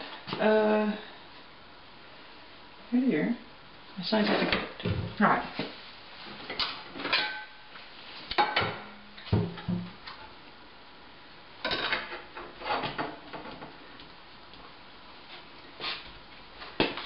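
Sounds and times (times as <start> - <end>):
dishes clattering on counter: 11.6 - 13.7.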